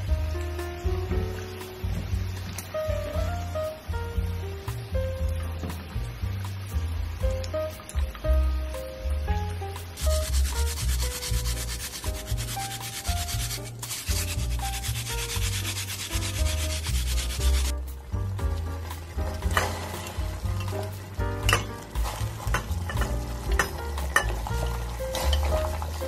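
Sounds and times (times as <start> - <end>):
background music with bass: 0.0 - 26.0
radish scraping on a grater: 10.0 - 17.7.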